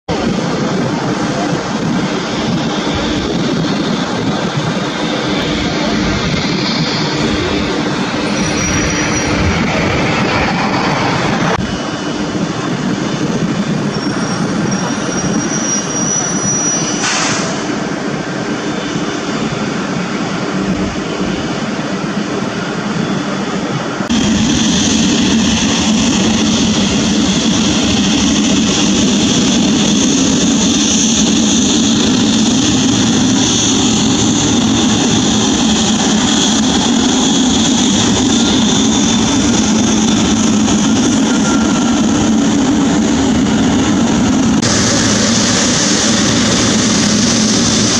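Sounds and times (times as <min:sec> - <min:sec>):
jet engines rumbling: 0:00.0 - 0:47.9
high-pitched jet whine: 0:00.1 - 0:47.9.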